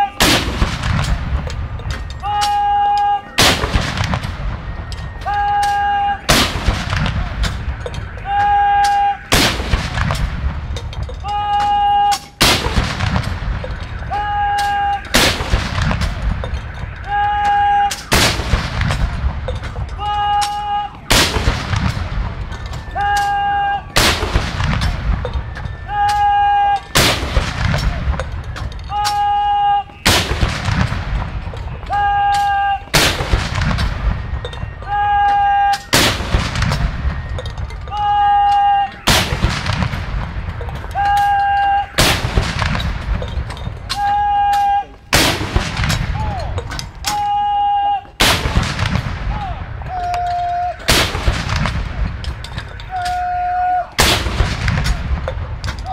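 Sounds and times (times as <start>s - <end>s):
gunshots with long echo: 0.1s - 1.8s, 3.3s - 8.2s, 9.2s - 10.8s, 12.4s - 19.9s, 20.5s - 22.6s, 23.8s - 25.8s, 26.8s - 28.6s, 30.0s - 31.8s, 32.9s - 34.7s, 35.8s - 37.4s, 38.9s - 40.7s, 42.0s - 43.5s, 45.1s - 46.4s, 48.2s - 49.8s, 50.9s - 52.5s, 54.0s - 55.7s
field gun booms: 0.2s - 1.5s, 3.4s - 4.8s, 6.3s - 7.7s, 9.3s - 10.7s, 12.4s - 14.0s, 14.6s - 16.6s, 17.9s - 19.8s, 21.1s - 22.4s, 23.9s - 25.4s, 26.9s - 29.2s, 30.0s - 31.5s, 32.9s - 34.3s, 35.9s - 37.2s, 39.0s - 40.5s, 42.0s - 43.4s, 45.1s - 46.4s, 48.2s - 49.7s, 50.9s - 52.3s, 54.0s - 55.8s.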